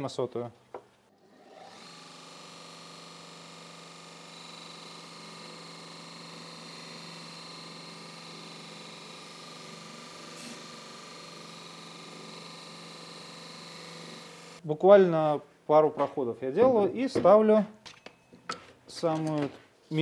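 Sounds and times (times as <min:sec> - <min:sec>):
belt grinder humming: 0:01.1 - 0:14.6.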